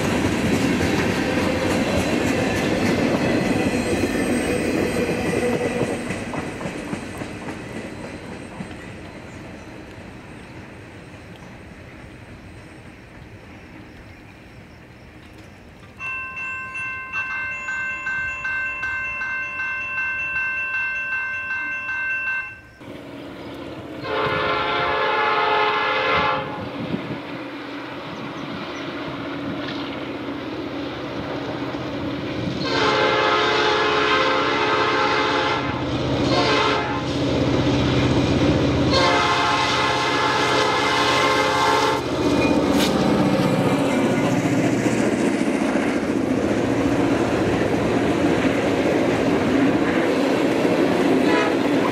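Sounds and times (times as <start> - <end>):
locomotive engine and wheels rumbling: 0.0 - 51.9
railroad crossing bell ringing: 15.8 - 22.9
train air horn: 24.0 - 26.7, 32.6 - 37.2, 38.9 - 42.1, 51.2 - 51.7.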